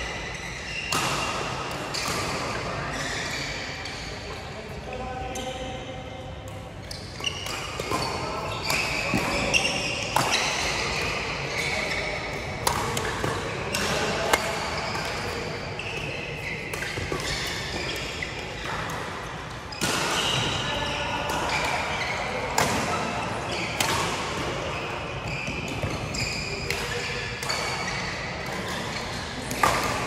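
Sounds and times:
rackets striking shuttlecock: 0:12.3 - 0:15.5, 0:29.4 - 0:30.0.

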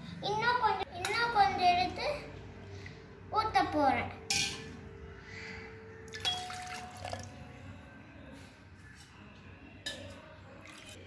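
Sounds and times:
water pouring into pot: 0:06.1 - 0:07.4.

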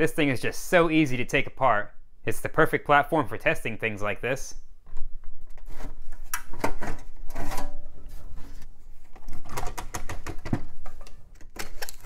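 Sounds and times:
computer case parts clicking and rattling: 0:04.9 - 0:07.9, 0:09.0 - 0:12.0.

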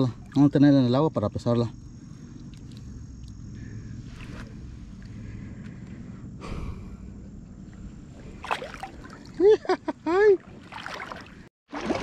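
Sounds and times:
water splash: 0:08.4 - 0:09.4, 0:10.4 - 0:12.0.

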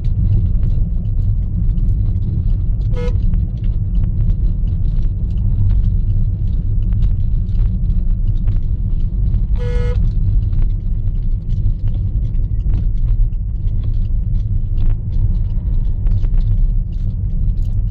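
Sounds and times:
car engine and road noise: 0:00.0 - 0:17.9
small knocks and rattles: 0:00.0 - 0:17.9
car horn toot: 0:02.9 - 0:03.2, 0:09.6 - 0:10.1.

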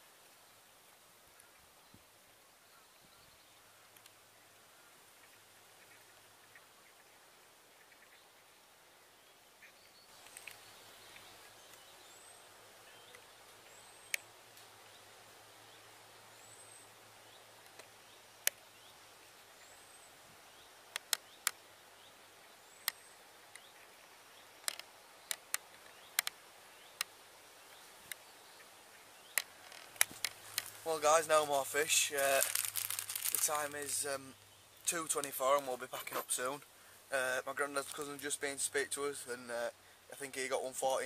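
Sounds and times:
bird chirping: 0:09.2 - 0:38.2
sharp clicks: 0:20.9 - 0:21.6, 0:24.6 - 0:26.4.

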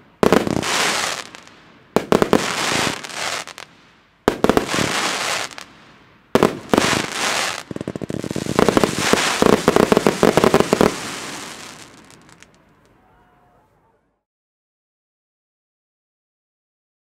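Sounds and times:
crackling firework stars: 0:00.0 - 0:13.2
firework reports with hiss: 0:00.2 - 0:12.5.

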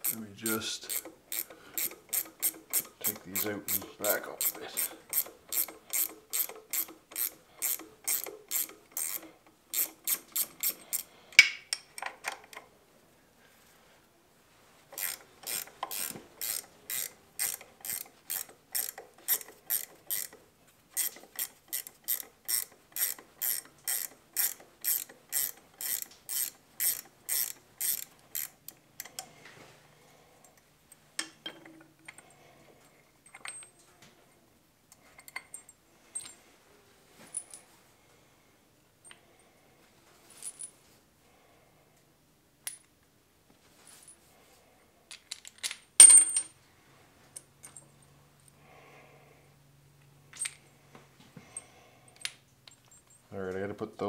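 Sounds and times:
ratchet wrench clicking: 0:00.0 - 0:12.1, 0:15.0 - 0:29.2.

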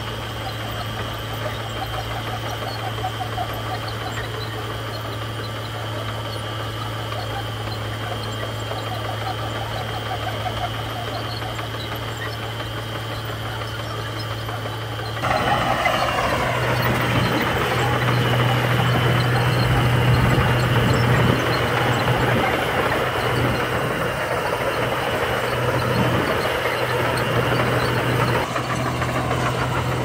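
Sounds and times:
bulldozer diesel engine: 0:00.0 - 0:30.0
bulldozer pushing gravel: 0:00.0 - 0:30.0.

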